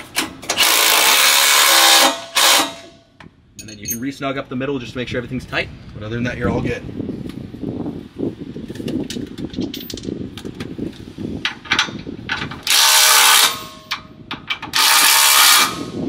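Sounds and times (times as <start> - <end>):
cordless power tool bursts: 0.5 - 2.9.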